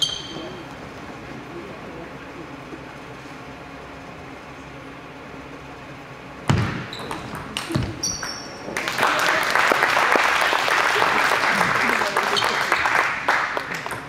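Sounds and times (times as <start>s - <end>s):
loud thump: 6.5s - 7.0s
crowd applauding: 8.6s - 14.0s.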